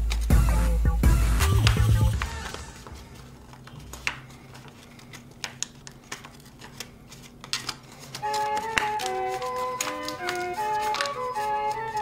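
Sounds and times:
background music: 0.0 - 3.2, 8.2 - 12.0
paper crinkling while folded: 1.6 - 12.0.

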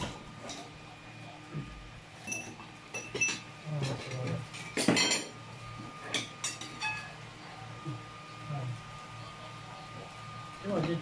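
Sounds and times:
plates and cutlery clinking: 2.2 - 7.2.

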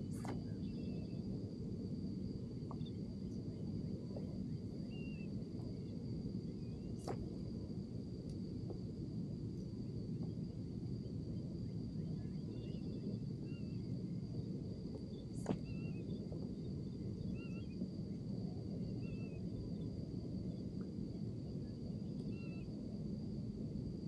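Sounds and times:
distant bird chirps: 15.1 - 16.2.

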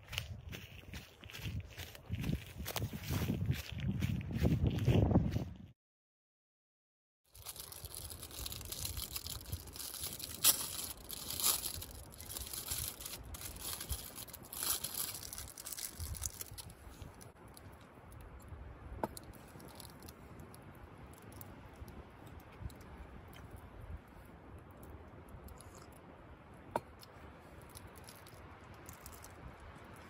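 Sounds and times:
plastic wrapper crinkling and tearing: 7.3 - 17.3.

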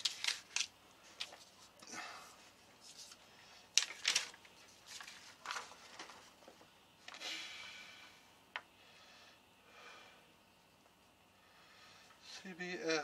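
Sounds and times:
paper sheets rustling: 0.0 - 1.8, 2.8 - 7.2.

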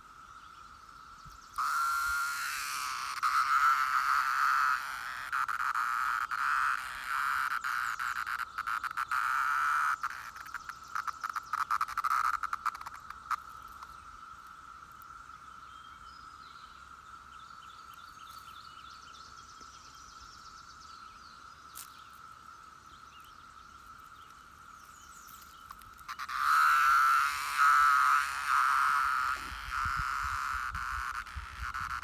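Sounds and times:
cicada buzzing loudly close by: 0.0 - 32.0
cicada chorus drone: 0.0 - 32.0.

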